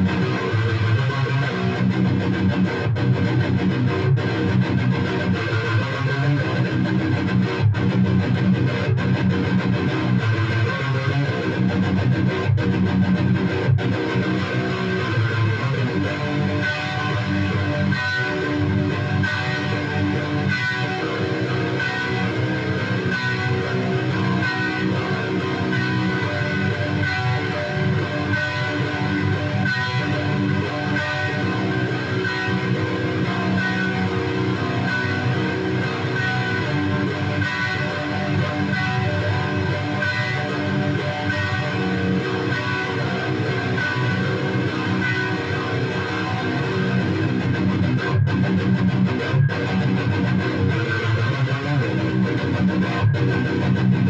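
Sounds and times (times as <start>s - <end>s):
electric guitar playing: 0.0s - 54.0s.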